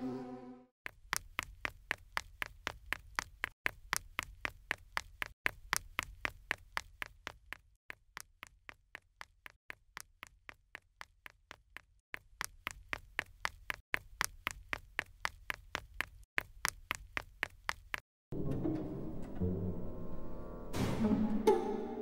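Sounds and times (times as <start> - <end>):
music: 18.3 - 22.0.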